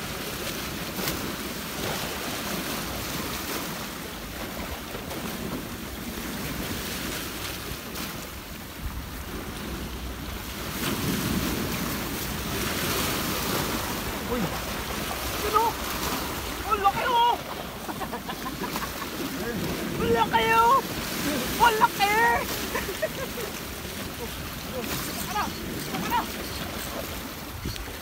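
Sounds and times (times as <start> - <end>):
sea waves breaking on rocks: 0.0 - 28.0.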